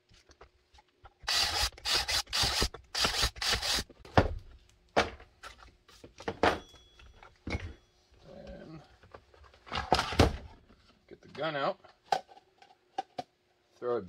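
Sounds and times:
power drill bursts: 1.2 - 3.8.

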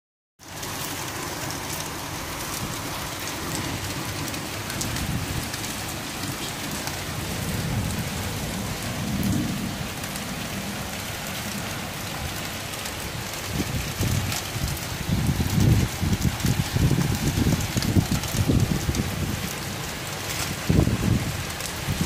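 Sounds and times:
rain splashing on tiled ground: 0.4 - 22.0.

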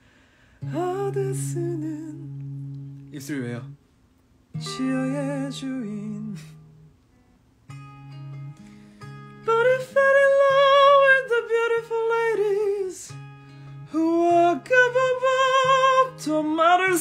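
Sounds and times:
man singing slow melody: 0.6 - 2.9, 4.6 - 6.7, 9.4 - 13.2, 13.8 - 17.0.

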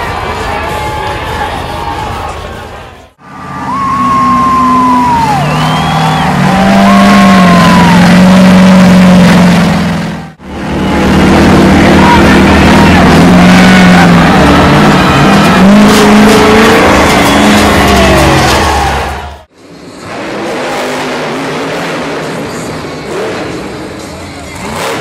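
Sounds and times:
truck engines revving hard: 0.0 - 25.0.

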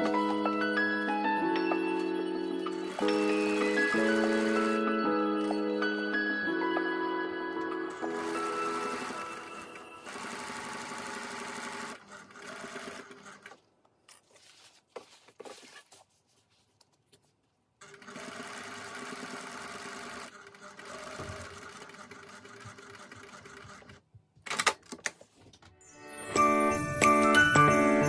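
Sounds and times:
sewing machine stitching: 8.0 - 13.6, 17.8 - 24.0.

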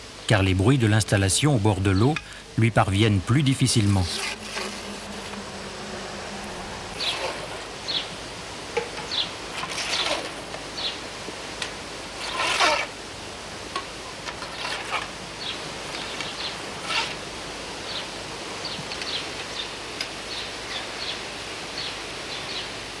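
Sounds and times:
fishing pole sections scraping: 3.3 - 5.5, 6.4 - 7.7, 9.5 - 10.5, 12.2 - 13.0, 14.3 - 15.2, 16.8 - 17.2.

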